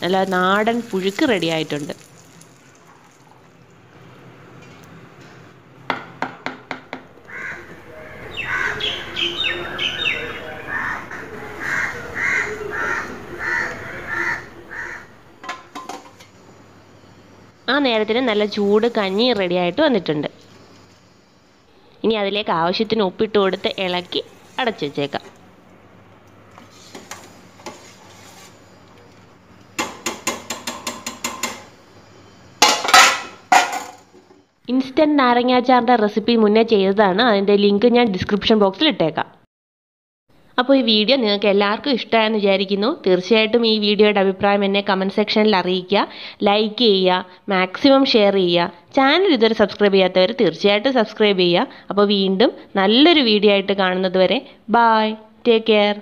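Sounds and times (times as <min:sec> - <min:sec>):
crows cawing: 0:07.2 - 0:09.9, 0:10.6 - 0:15.2
downward-sweeping bird calls: 0:07.3 - 0:15.2
spoon knocking metal pot: 0:29.8 - 0:31.7.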